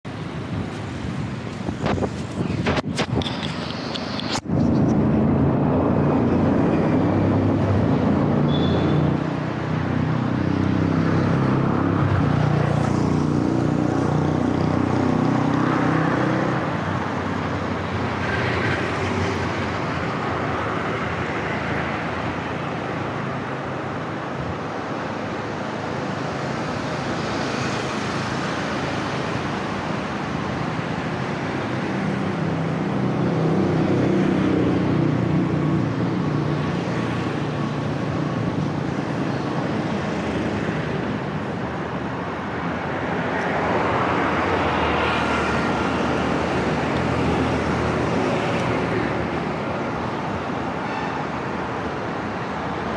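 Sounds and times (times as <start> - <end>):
road traffic: 0.0 - 52.9
vehicles passing: 0.0 - 52.9
wind rumbling on microphone: 0.1 - 8.4.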